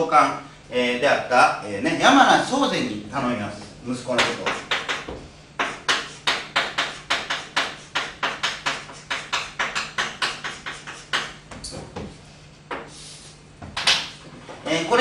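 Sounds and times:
chalk tapping on blackboard: 4.2 - 13.0.

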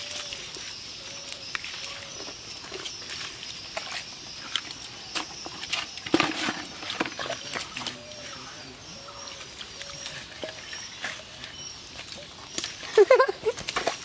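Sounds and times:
mud squelching: 0.0 - 14.0
fish slapping into bucket: 3.8 - 8.0, 13.6 - 14.0.

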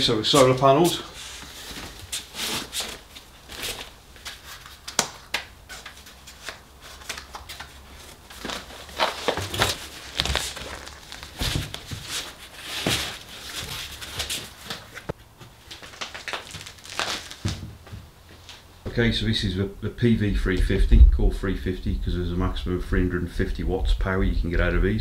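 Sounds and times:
fabric rustling and crinkling: 5.7 - 18.8.

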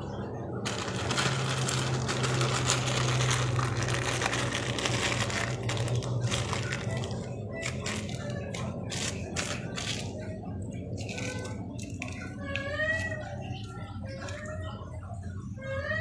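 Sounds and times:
plastic bag crinkling: 0.6 - 10.3.

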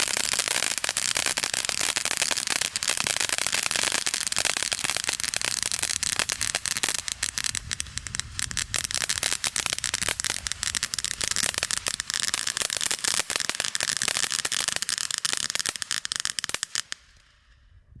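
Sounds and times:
fireworks crackling and popping: 0.0 - 17.6.

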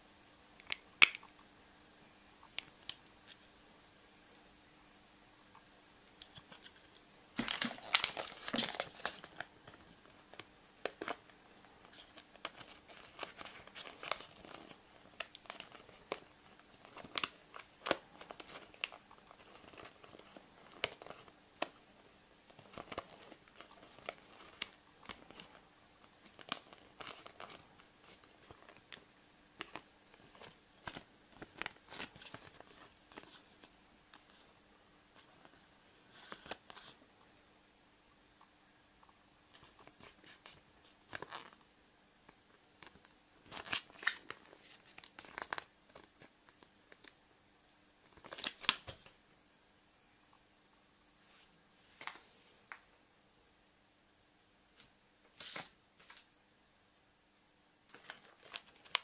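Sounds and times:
wrapper crinkling and tearing: 7.4 - 9.8, 11.8 - 21.7, 29.6 - 33.4, 42.8 - 46.3, 48.1 - 49.1, 57.9 - 59.0.

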